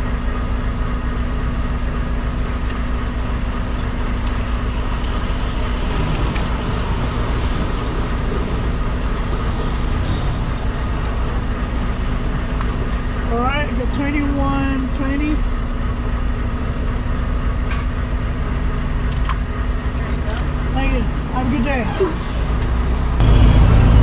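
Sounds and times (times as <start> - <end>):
diesel truck engine idling: 0.0 - 24.0.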